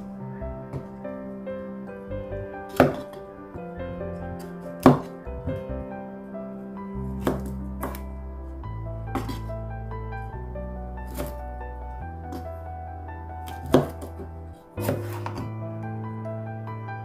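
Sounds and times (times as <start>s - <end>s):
background music: 0.0s - 17.0s
knife chopping on wooden board: 2.7s - 3.1s, 13.6s - 14.1s, 14.8s - 15.4s.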